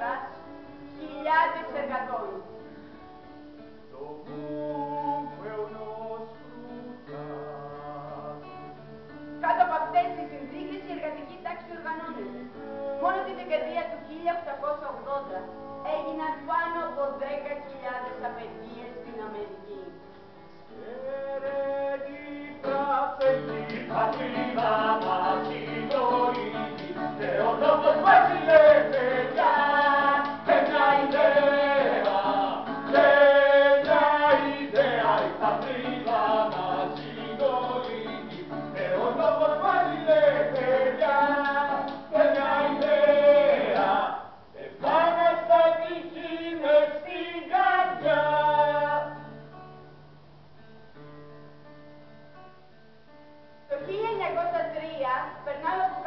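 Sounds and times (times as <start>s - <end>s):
acoustic guitar: 0.0s - 56.0s
group of people singing: 20.8s - 49.3s.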